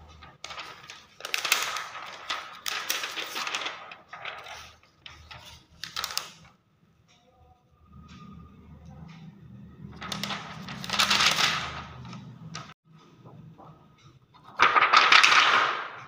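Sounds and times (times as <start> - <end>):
plastic film crinkling: 0.1 - 6.4, 10.0 - 12.7, 14.6 - 15.6.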